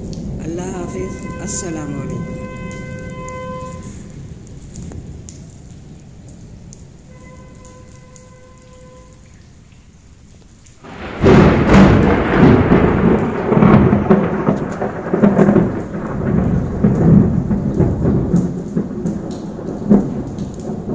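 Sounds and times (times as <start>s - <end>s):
thunder rumbling: 0.0s - 9.2s, 10.8s - 20.9s
heavy rain: 0.0s - 20.9s.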